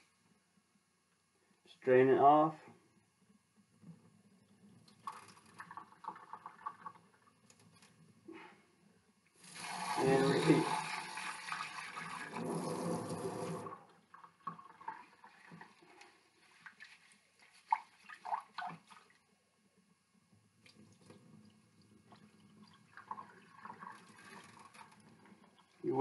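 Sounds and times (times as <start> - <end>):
tap water running into pot: 9.4 - 15.7.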